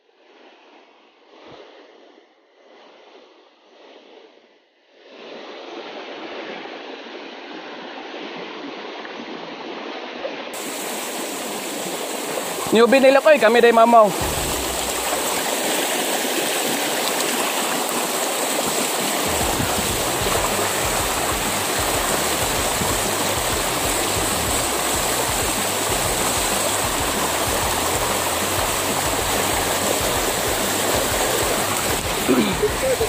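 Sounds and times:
stream rushing over stones: 8.7s - 33.0s.

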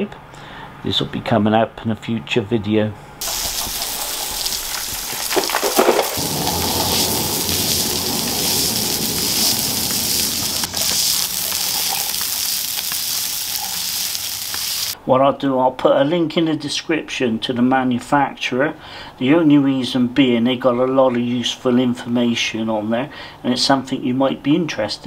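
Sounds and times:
hose water splashing: 3.2s - 15.0s
push broom scrubbing wet slabs: 3.2s - 15.0s.

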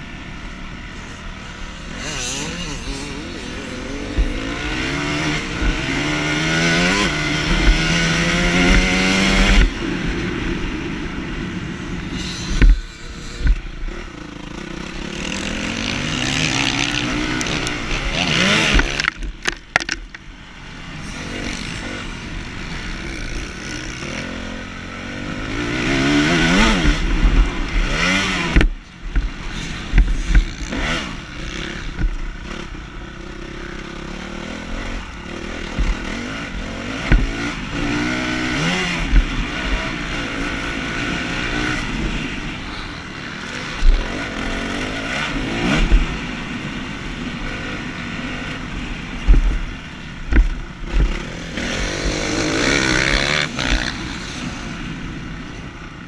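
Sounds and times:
dirt bike engine revving: 0.0s - 10.6s, 11.9s - 56.0s
sharp thumps: 1.9s - 9.8s, 12.1s - 14.2s, 15.2s - 20.3s, 26.5s - 30.8s, 35.7s - 36.3s, 49.2s - 54.0s.

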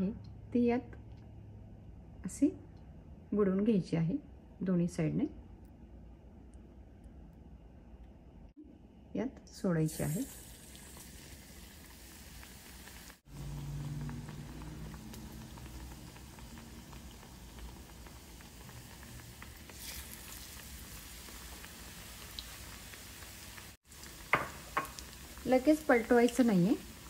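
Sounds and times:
food deep-frying in hot oil: 9.8s - 27.0s.

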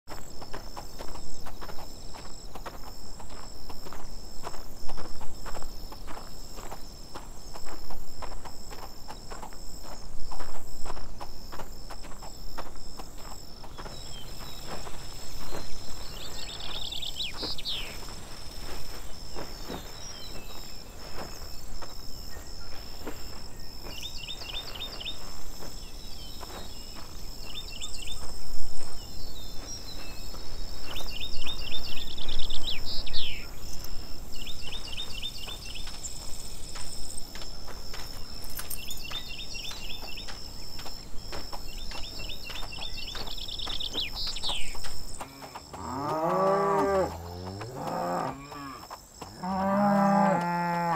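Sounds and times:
high insect drone: 0.1s - 50.9s
birds singing: 9.0s - 48.8s
horse tack knocks and clinks: 38.4s - 39.1s.

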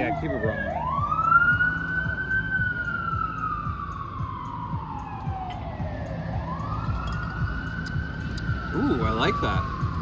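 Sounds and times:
emergency siren wailing: 0.0s - 10.0s
low traffic rumble: 0.0s - 10.0s.

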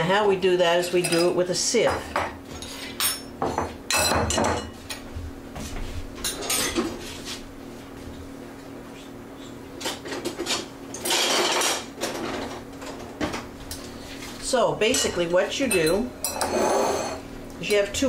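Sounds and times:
dishes and utensils clinking: 1.0s - 5.0s, 6.2s - 6.9s, 14.9s - 17.2s.

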